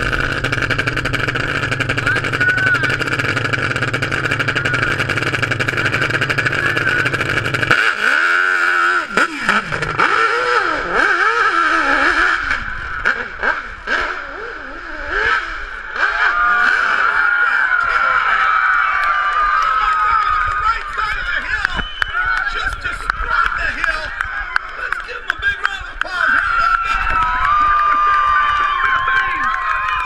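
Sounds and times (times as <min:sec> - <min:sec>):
motorcycle engine revving: 0:00.0 - 0:19.7.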